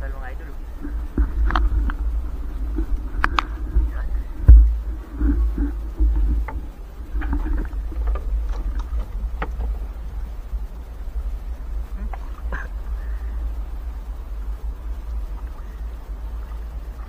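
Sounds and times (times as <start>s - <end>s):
knocks against hull: 0.8s - 9.8s.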